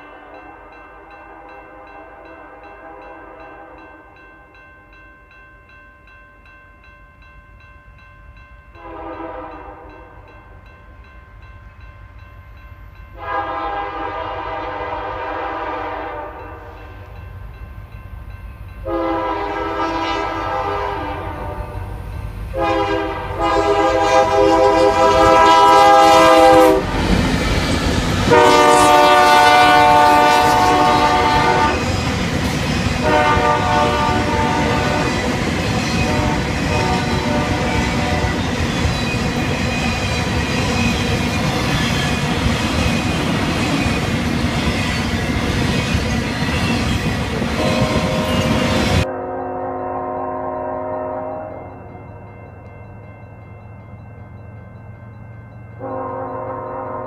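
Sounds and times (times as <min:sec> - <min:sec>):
train engine and wheels rumbling: 0:00.0 - 0:57.0
locomotive air horn blasts: 0:08.8 - 0:10.1, 0:13.2 - 0:16.9, 0:18.8 - 0:27.0, 0:28.3 - 0:31.9, 0:33.0 - 0:35.2, 0:36.0 - 0:38.4, 0:47.6 - 0:51.7, 0:55.8 - 0:57.0.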